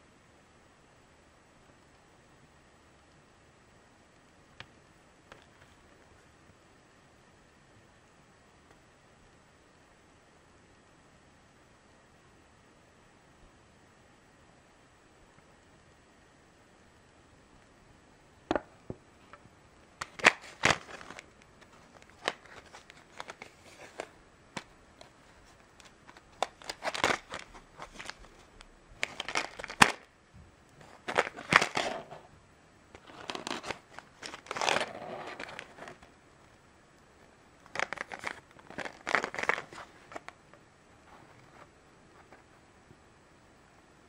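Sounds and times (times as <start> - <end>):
plastic packaging crinkling: 20.0 - 30.1, 30.8 - 32.3, 33.0 - 36.1, 37.6 - 40.3.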